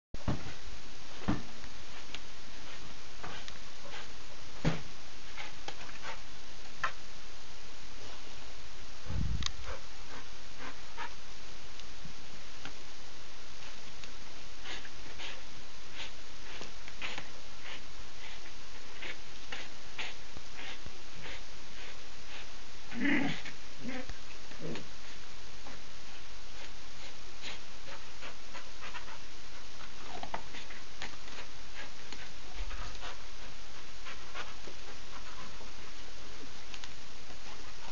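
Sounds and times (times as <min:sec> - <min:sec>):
steady hiss: 0:00.2 - 0:37.9
dog panting: 0:04.7 - 0:06.3, 0:09.5 - 0:11.2, 0:14.6 - 0:22.5, 0:23.3 - 0:36.0, 0:36.8 - 0:37.9
dog breathing quickly: 0:14.6 - 0:22.5.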